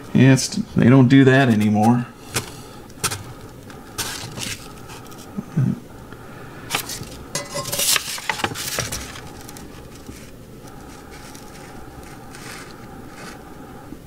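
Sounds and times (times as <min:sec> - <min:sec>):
paper rustling: 0:01.5 - 0:05.3, 0:06.7 - 0:13.4.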